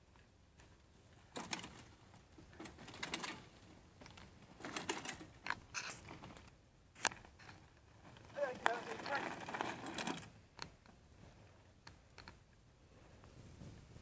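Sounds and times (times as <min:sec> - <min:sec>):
bike tyres crunching on gravel: 0:07.3 - 0:10.4.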